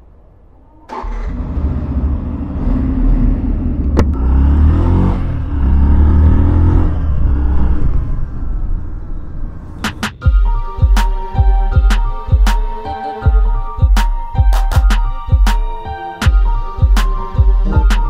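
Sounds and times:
motorcycle engine revving: 0:00.9 - 0:09.8.

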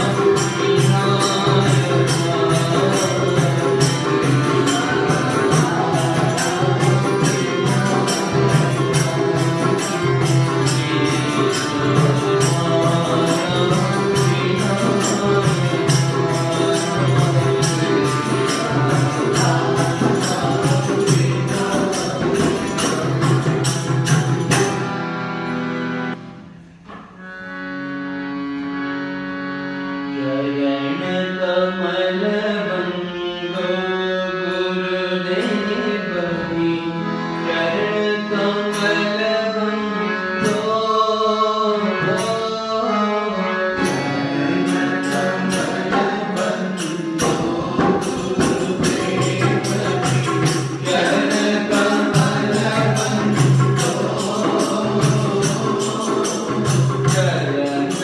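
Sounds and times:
fast percussive beat: 0:00.0 - 0:24.9, 0:44.7 - 0:58.0.

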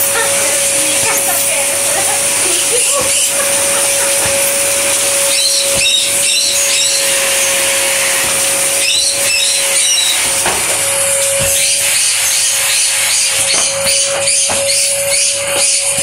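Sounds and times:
vacuum cleaner running: 0:00.0 - 0:16.0
vacuum nozzle pushed over carpet: 0:00.0 - 0:16.0.

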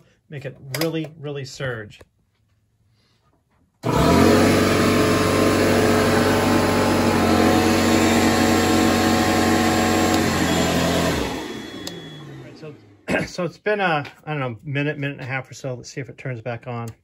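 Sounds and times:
electric appliances humming whir: 0:03.8 - 0:13.2.

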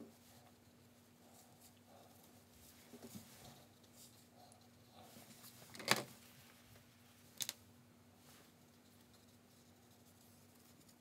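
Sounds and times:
faint steady hum: 0:00.0 - 0:11.0
brush on watercolour paper: 0:00.1 - 0:05.6, 0:08.2 - 0:11.0.

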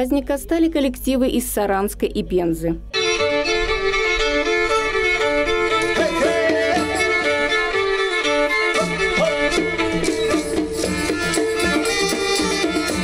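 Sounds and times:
held drone note: 0:02.9 - 0:13.0
violin folk melody: 0:02.9 - 0:13.0.

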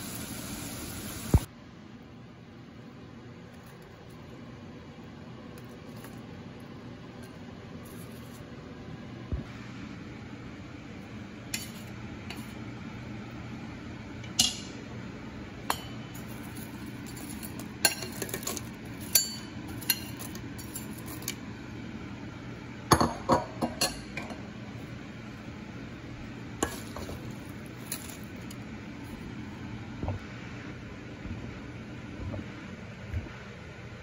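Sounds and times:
utensil clinking metal bowl: 0:15.7 - 0:21.4, 0:26.6 - 0:28.5.

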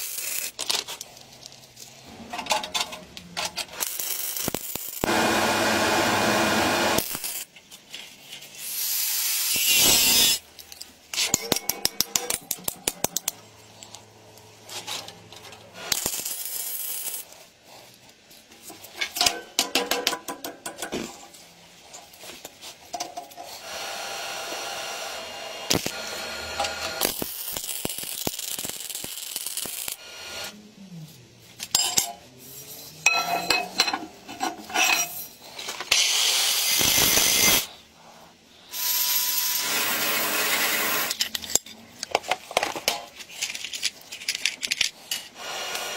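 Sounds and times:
steady tool noise: 0:03.8 - 0:07.5, 0:08.5 - 0:10.4, 0:23.2 - 0:30.6, 0:32.6 - 0:41.6, 0:44.9 - 0:45.9
metallic clinks and knocks: 0:32.8 - 0:35.3.

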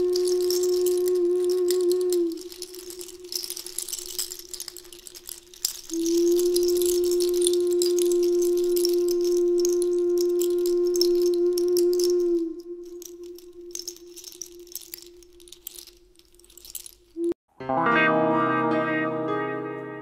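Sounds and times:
long held instrument note: 0:00.0 - 0:03.4, 0:05.9 - 0:14.8, 0:17.2 - 0:20.0
continuous high rattle: 0:00.0 - 0:17.4.

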